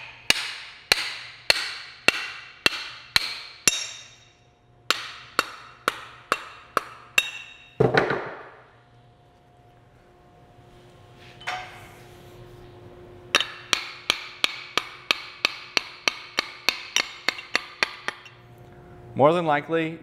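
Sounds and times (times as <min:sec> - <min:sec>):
hammer striking axe head: 0:00.0 - 0:08.4, 0:13.3 - 0:18.4.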